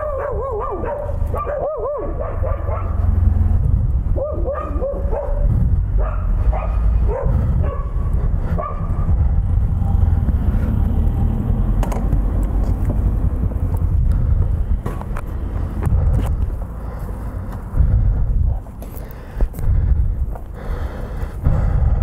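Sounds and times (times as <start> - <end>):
dog barking: 0.0 - 3.1, 4.1 - 8.0, 8.6 - 9.1
motorcycle rumble: 0.0 - 22.0
wind on microphone: 3.0 - 16.8, 17.6 - 20.4.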